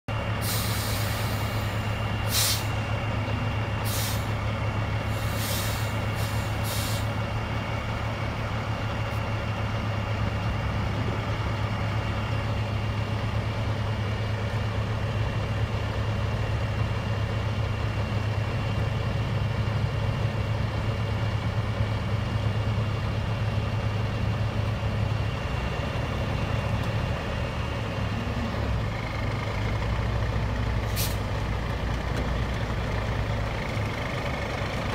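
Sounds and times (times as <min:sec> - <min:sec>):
diesel truck engines running: 0:00.1 - 0:34.9
air hissing: 0:00.4 - 0:02.8, 0:05.1 - 0:07.1, 0:30.9 - 0:31.2.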